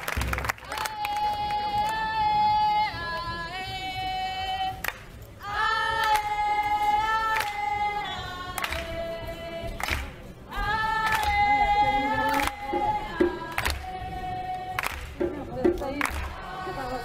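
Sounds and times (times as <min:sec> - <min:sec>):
group singing in unison: 0:00.6 - 0:17.0.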